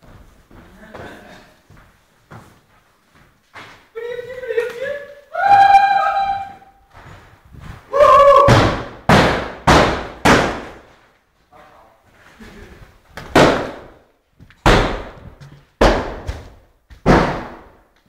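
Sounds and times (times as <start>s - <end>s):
heavy objects banging on hard floor: 14.6s - 17.8s.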